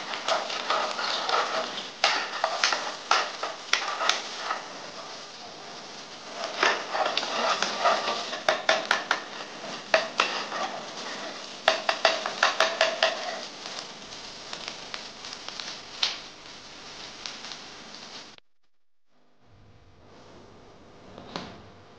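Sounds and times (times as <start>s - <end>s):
metal spatula scraping a pan: 0.0s - 13.8s.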